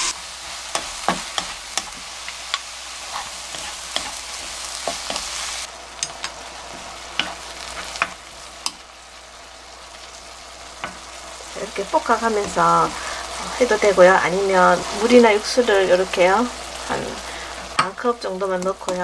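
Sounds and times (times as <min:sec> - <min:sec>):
wooden spatula scraping a pan: 0:00.0 - 0:08.2
vegetables sizzling in a pan: 0:00.0 - 0:19.0.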